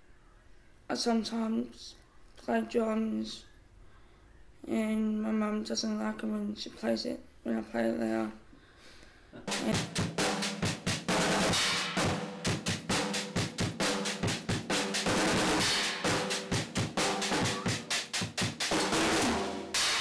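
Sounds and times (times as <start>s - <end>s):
cymbal crashes: 9.5s - 20.0s
snare and tom strokes: 9.5s - 20.0s.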